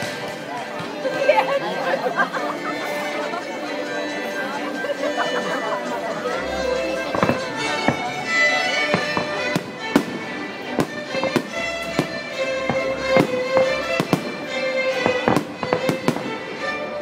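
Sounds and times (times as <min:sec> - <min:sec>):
string music: 0:00.0 - 0:17.0
fireworks bursting: 0:06.8 - 0:17.0.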